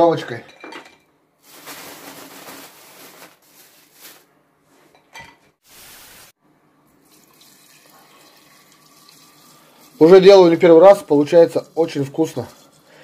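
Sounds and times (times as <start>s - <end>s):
plastic bag rustling: 1.4s - 4.3s, 5.6s - 6.4s.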